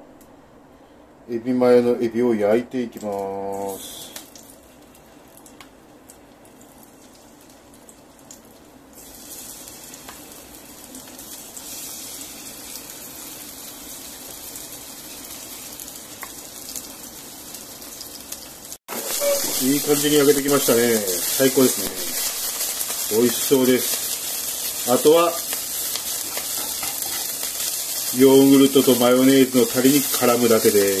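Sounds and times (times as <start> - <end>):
shrimp sizzling in hot oil: 6.5 - 31.0.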